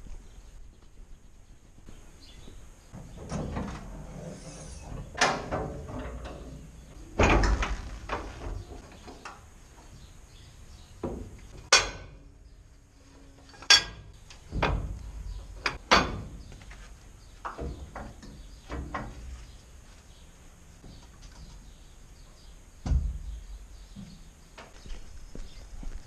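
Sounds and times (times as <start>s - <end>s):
metal latches clanking: 4.8s - 8.6s, 13.6s - 16.4s.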